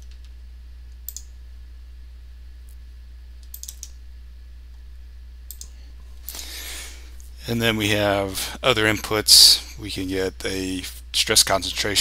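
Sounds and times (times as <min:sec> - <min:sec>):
low hum: 0:00.0 - 0:12.0
mouse and keyboard clicking: 0:03.4 - 0:04.0.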